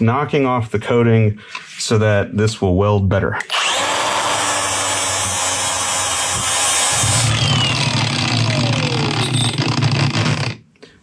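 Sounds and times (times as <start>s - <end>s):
grinder spinning down whine: 3.5s - 10.6s
angle grinder sanding steel: 3.6s - 10.5s.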